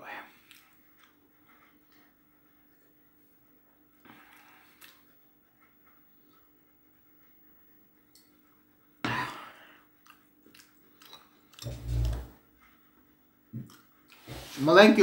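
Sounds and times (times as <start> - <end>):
person chewing: 4.3 - 5.1, 9.9 - 12.3, 13.6 - 14.3.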